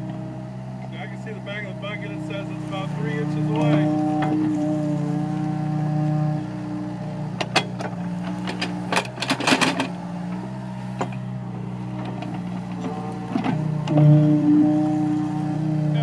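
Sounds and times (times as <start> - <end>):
excavator engine running: 0.0 - 16.0.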